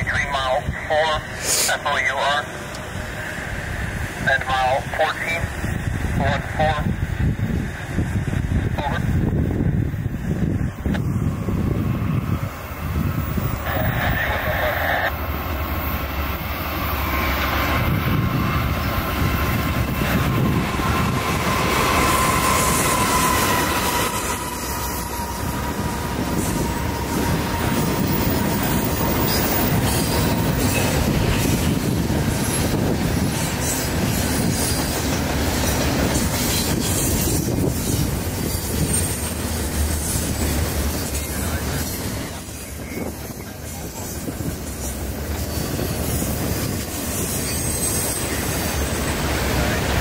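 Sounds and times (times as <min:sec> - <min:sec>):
diesel locomotive passing: 0:00.0 - 0:50.0
train wheels clacking over rails: 0:15.2 - 0:50.0
thin steady squeal: 0:36.2 - 0:49.4.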